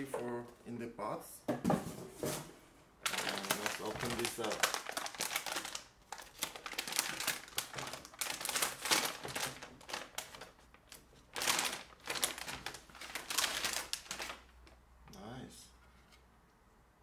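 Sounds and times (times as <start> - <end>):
plastic bag crinkling: 3.0 - 14.8.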